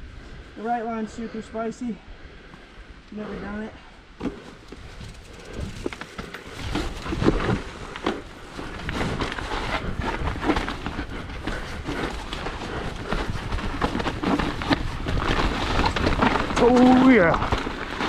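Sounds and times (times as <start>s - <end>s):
bike clattering over rough ground: 4.2s - 18.0s.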